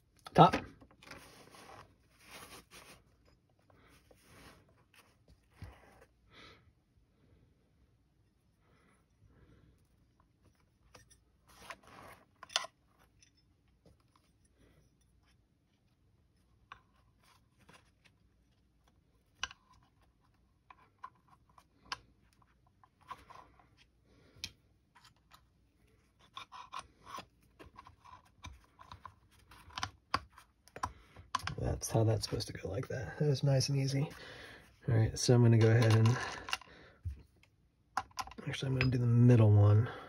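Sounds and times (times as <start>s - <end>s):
fabric rustling scrapes: 1.1s - 3.2s.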